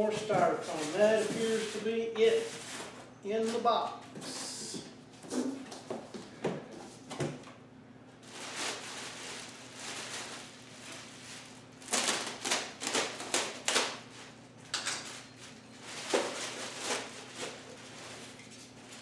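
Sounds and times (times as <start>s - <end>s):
plastic bag crinkling and rustling: 0.0s - 3.6s, 8.2s - 14.4s, 15.0s - 19.0s.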